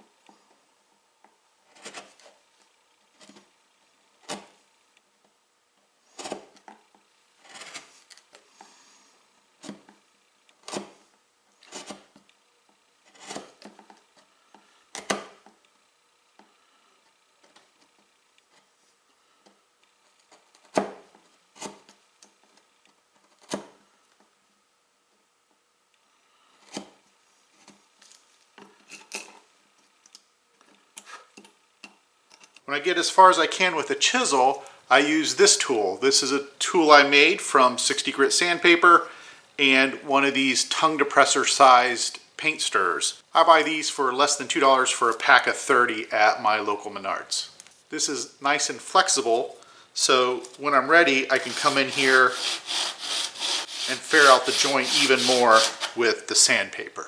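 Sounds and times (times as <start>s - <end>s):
chisel paring wood: 51.6s - 56.0s.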